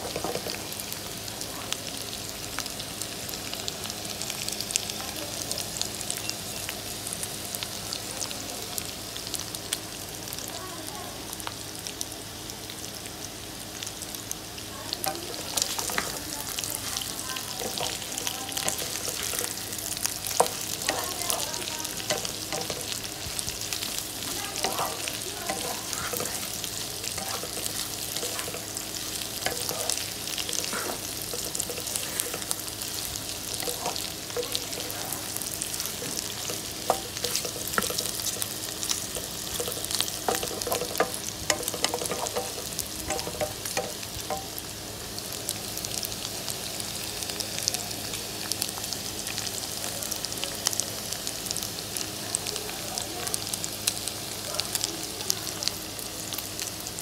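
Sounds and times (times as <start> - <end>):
pork and potatoes sizzling: 0.0 - 57.0
wooden spatula scraping a pan: 24.6 - 28.7, 29.4 - 32.6.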